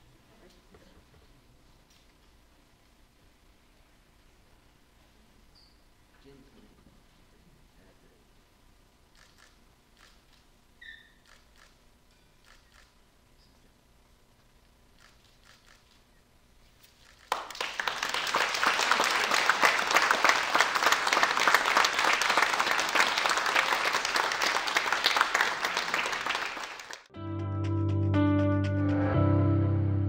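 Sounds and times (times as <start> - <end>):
crowd applauding: 17.3 - 27.1.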